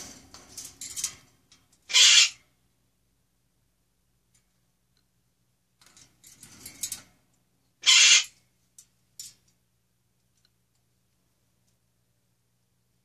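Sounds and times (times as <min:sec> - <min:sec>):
bird squawk: 0:01.9 - 0:02.4, 0:07.8 - 0:08.4.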